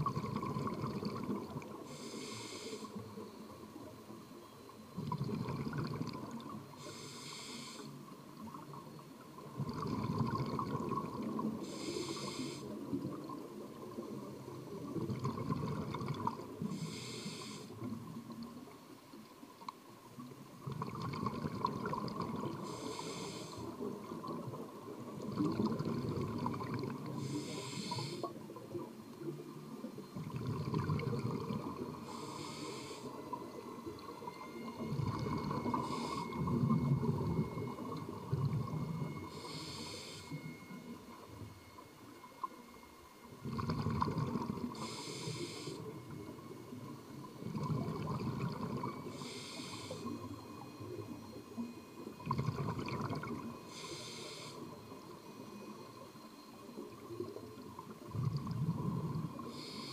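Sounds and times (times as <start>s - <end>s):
exhaled air bubbling: 0.0s - 2.3s, 5.0s - 7.0s, 9.4s - 18.6s, 20.6s - 40.8s, 43.3s - 54.8s, 56.9s - 59.9s
regulator inhale hiss: 1.7s - 3.2s, 6.7s - 8.2s, 11.6s - 13.0s, 16.5s - 18.0s, 22.6s - 23.9s, 27.1s - 28.5s, 31.8s - 33.4s, 34.5s - 36.7s, 39.1s - 41.0s, 44.6s - 46.2s, 49.0s - 51.0s, 53.6s - 55.1s, 59.3s - 59.9s.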